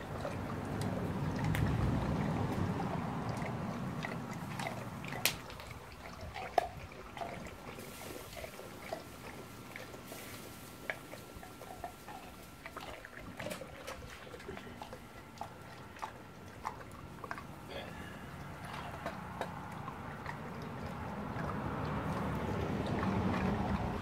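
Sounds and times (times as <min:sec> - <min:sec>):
dog lapping water: 0:00.0 - 0:24.0.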